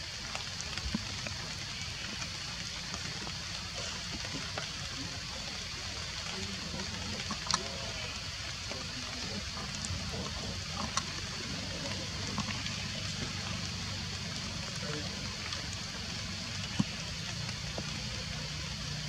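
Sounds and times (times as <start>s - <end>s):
outdoor background hiss: 0.0s - 19.0s.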